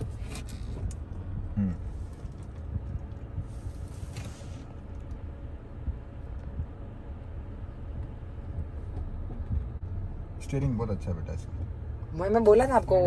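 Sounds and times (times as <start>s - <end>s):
faint clicks and creaks: 0.0s - 1.4s
engine and road rumble: 0.0s - 13.0s.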